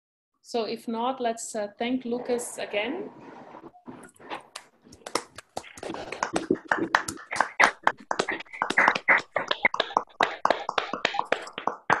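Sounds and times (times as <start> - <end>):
people clapping: 4.5 - 12.0.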